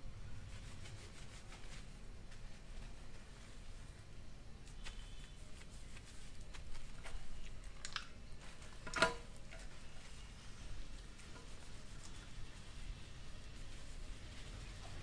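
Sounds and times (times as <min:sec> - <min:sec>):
hands lathering shampoo in hair: 0:04.6 - 0:08.9, 0:09.5 - 0:15.0.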